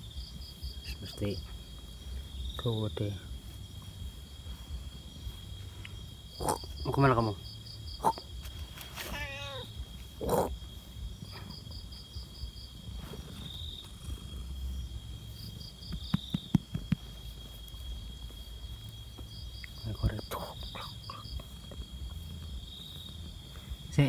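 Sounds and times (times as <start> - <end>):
crickets chirping: 0.0 - 24.0
cat meowing: 9.0 - 9.7
cat purring: 9.2 - 17.7.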